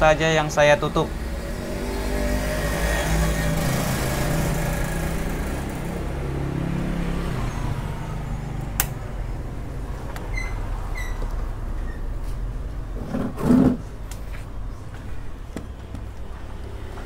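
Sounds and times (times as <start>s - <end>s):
sharp click: 8.8s - 9.0s.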